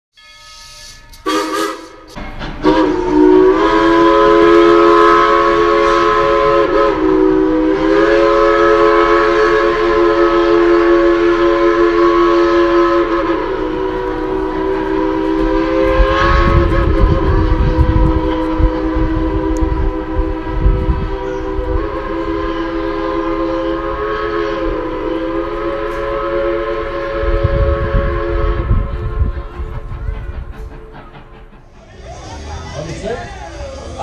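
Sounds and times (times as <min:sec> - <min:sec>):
steam locomotive chime whistle: 0:00.1 - 0:34.0
steam hissing: 0:00.7 - 0:34.0.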